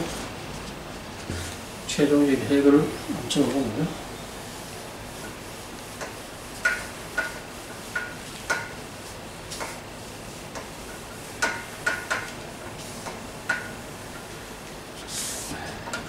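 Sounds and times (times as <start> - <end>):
eraser knocking on whiteboard: 1.2 - 1.6, 6.0 - 8.8, 11.4 - 12.4.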